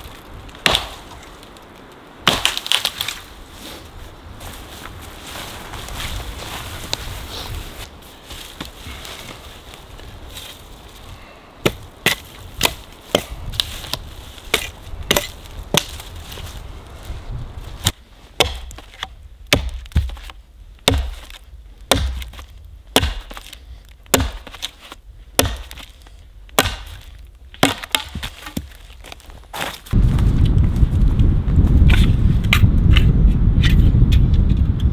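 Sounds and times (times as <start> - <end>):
hatchet chopping wood: 0.6 - 1.1, 2.2 - 3.1, 11.6 - 16.0, 17.8 - 28.8.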